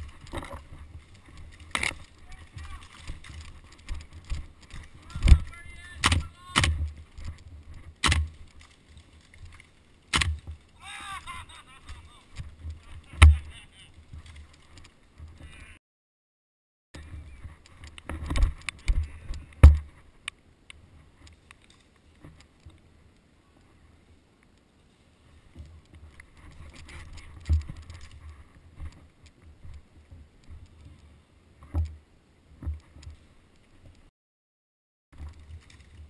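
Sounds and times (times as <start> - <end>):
footfalls in undergrowth: 0.0 - 9.8
brush rustling: 0.0 - 15.7
sharp knocks and heavy thumps: 13.2 - 13.5, 19.6 - 19.9.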